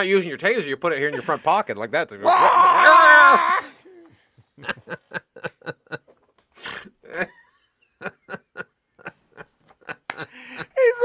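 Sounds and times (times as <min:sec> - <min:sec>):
men laughing hard: 0:01.2 - 0:01.5, 0:04.4 - 0:11.0.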